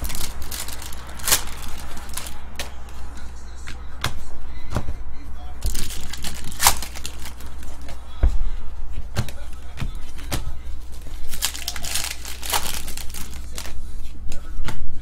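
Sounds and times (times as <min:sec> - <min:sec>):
wrapper tearing and crinkling: 0:00.0 - 0:02.4, 0:05.6 - 0:07.9, 0:10.9 - 0:13.8.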